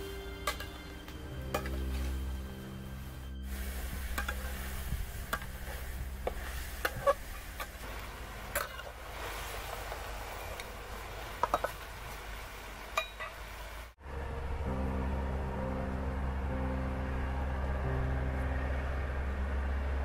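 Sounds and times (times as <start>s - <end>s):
food sizzling: 0.0s - 14.0s
metal utensil scraping cookware: 0.4s - 2.2s, 4.2s - 4.7s, 5.3s - 7.8s, 8.5s - 9.0s.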